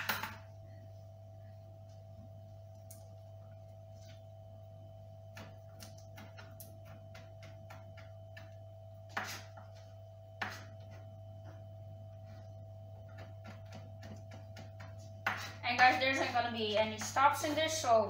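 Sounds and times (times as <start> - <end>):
steady hum: 0.0 - 18.0
knife chopping on cutting board: 9.1 - 9.6, 10.4 - 10.8.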